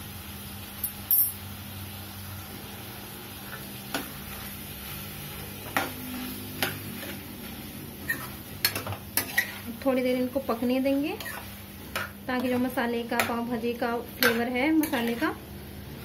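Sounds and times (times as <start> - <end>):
spoon stirring in metal pot: 8.0 - 9.8, 11.1 - 13.5, 14.1 - 15.4.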